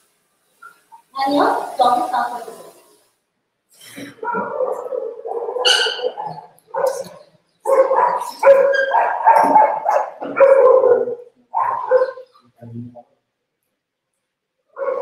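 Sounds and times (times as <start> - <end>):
dog crying: 4.2 - 12.3.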